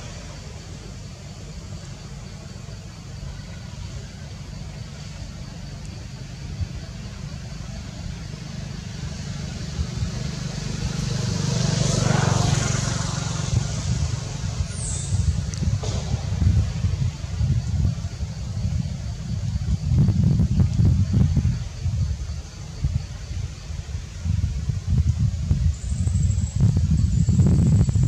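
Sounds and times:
steady low rumble: 0.0s - 28.0s
road vehicle passing by: 8.2s - 17.5s.

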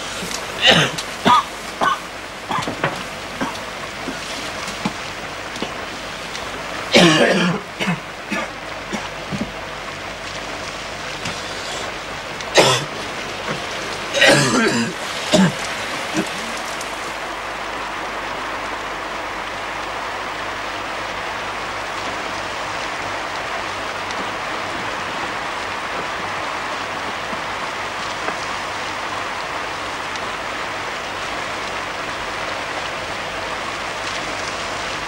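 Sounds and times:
rain falling: 0.0s - 35.0s
man coughing: 0.6s - 2.8s, 6.9s - 9.1s, 12.6s - 12.9s, 14.1s - 16.5s.

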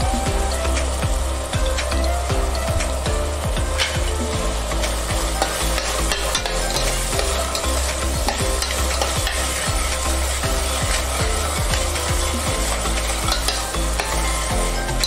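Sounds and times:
food sizzling: 0.0s - 15.0s
spoon scraping a metal pot: 5.3s - 15.0s.

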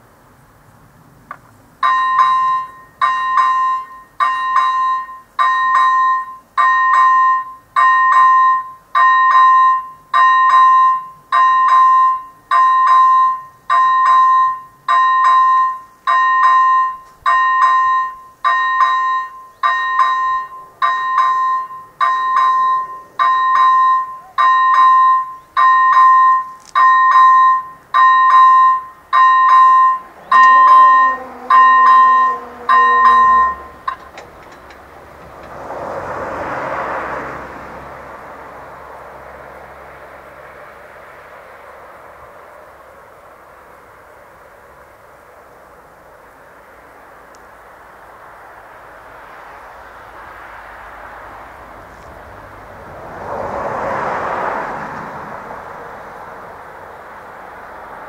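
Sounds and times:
level crossing bell ringing: 1.8s - 34.8s.

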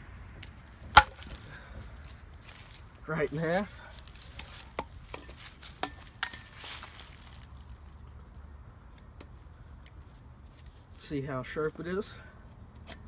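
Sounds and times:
branch pieces rustling: 0.8s - 8.0s.

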